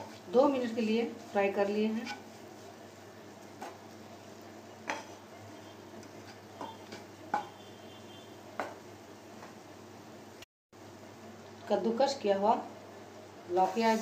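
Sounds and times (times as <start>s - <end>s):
wooden spatula scraping a pan: 0.0s - 2.8s, 13.6s - 14.0s.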